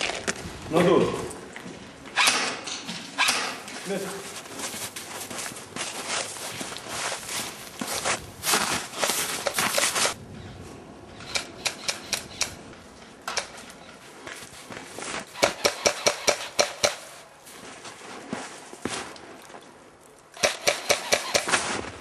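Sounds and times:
airsoft guns firing snapping shots: 2.2 - 3.6, 15.4 - 17.0, 20.4 - 21.8
loud rustling and scuffing: 3.0 - 10.7, 13.6 - 15.4, 17.0 - 19.6.

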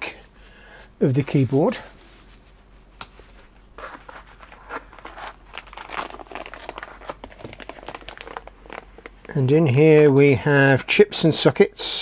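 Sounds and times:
plastic bag crinkling: 3.8 - 9.4.

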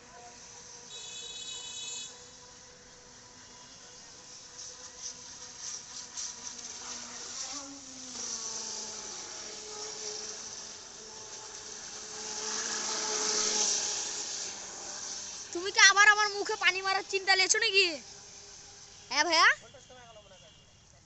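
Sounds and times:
small boat motor whining: 0.0 - 20.6
water spray hissing: 0.3 - 19.6.

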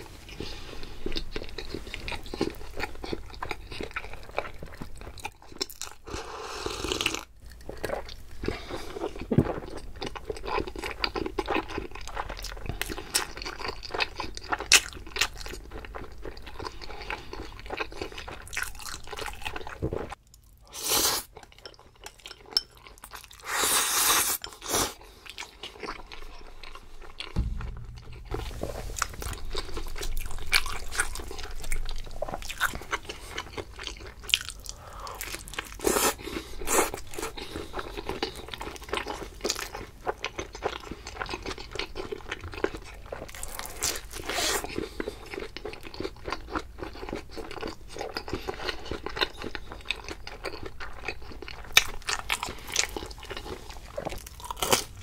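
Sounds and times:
wet chewing: 28.9 - 55.0.

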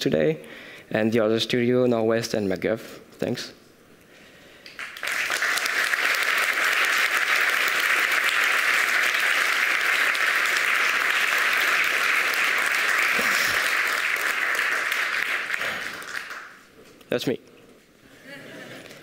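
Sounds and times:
audience applauding: 4.7 - 16.6.

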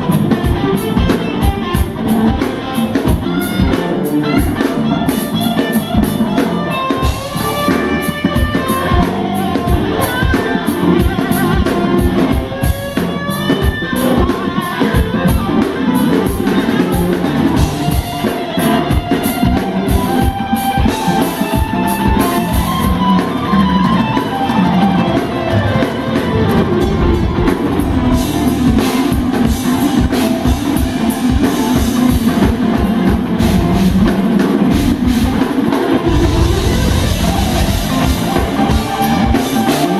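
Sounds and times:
bass guitar: 0.0 - 39.9
drums: 0.0 - 39.9
electric guitar lead: 0.0 - 39.9.

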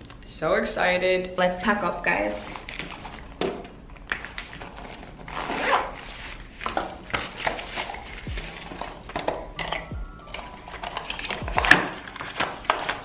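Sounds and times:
cardboard boxes rustling: 4.3 - 13.0.

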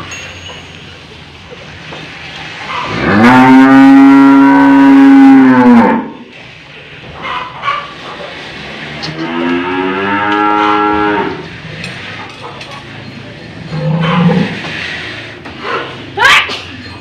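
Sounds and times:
cow mooing: 2.8 - 6.3, 8.9 - 11.5, 13.7 - 14.6.

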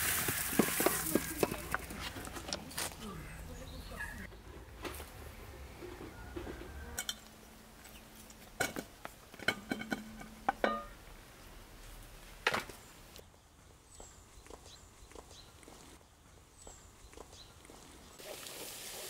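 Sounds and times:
kitchenware clinks and knocks: 8.6 - 10.9.

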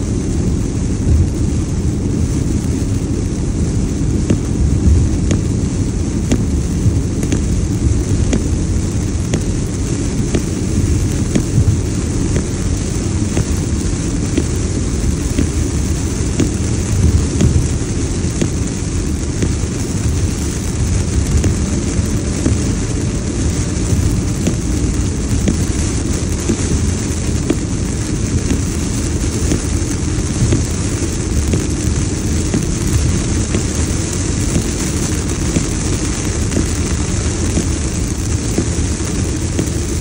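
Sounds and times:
hiss of rain and tyre spray: 0.0 - 40.0
low rumble inside car: 0.0 - 40.0.

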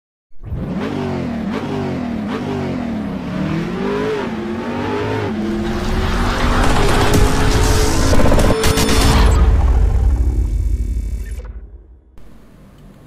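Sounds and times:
car engine accelerating hard: 0.4 - 8.8.

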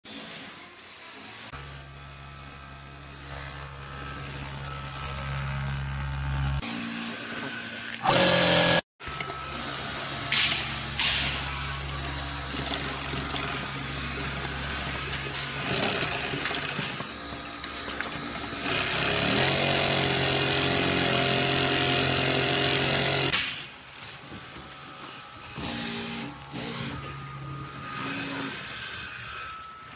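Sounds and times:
industrial sewing machine running: 8.1 - 23.3.

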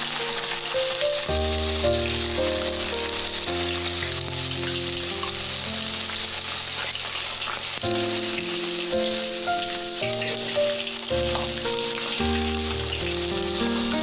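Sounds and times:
background music with held notes: 0.0 - 14.0
vegetables deep-frying in oil: 0.0 - 14.0.

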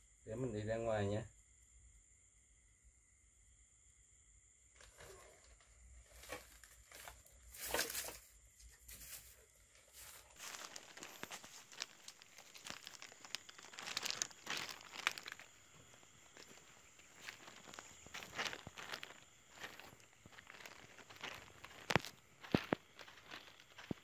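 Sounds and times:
footsteps crunching on debris: 6.0 - 24.0
plastic bag crinkling: 10.2 - 15.5.

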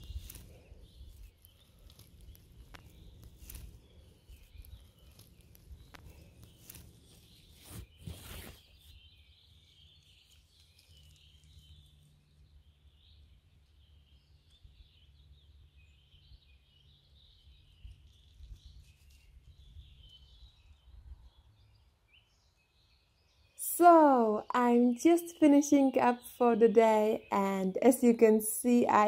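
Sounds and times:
hands rustling mushrooms and moss: 0.0 - 12.3
faint high-pitched chirping: 0.0 - 29.0.

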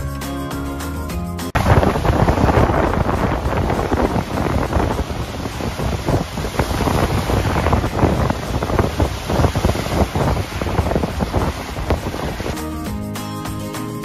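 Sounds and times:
gusty wind buffeting microphone: 1.6 - 12.6
waves washing on rocky shore: 1.6 - 12.6.

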